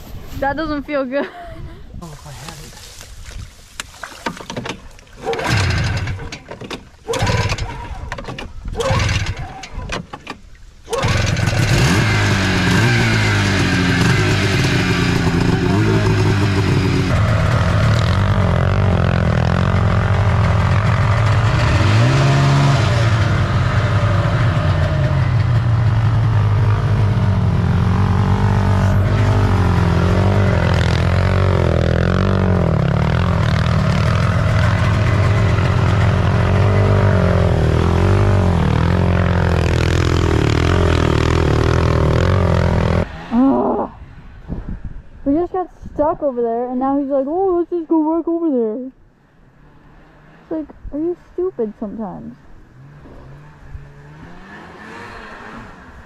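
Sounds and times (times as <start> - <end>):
atv engine revving: 5.2 - 10.0, 10.8 - 44.1, 49.4 - 56.0
snowmobile engine running: 10.9 - 43.8.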